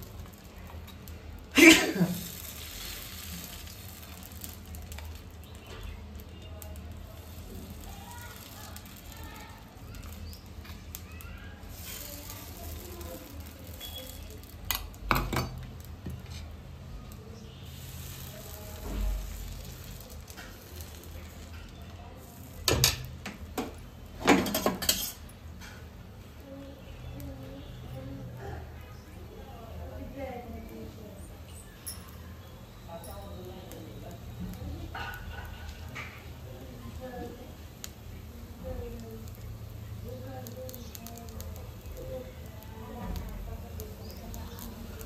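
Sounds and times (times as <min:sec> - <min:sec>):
batter sizzling on hot griddle: 0:00.0 - 0:45.0.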